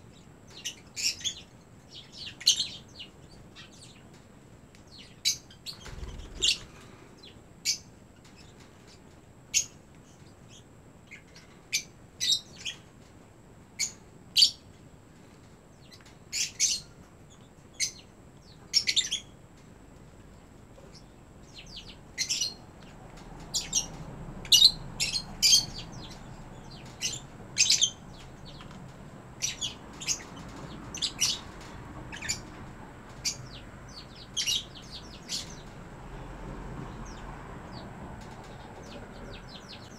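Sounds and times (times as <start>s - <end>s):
lovebirds chirping: 4.9s - 12.8s, 15.8s - 19.4s, 20.3s - 36.2s, 36.8s - 39.9s.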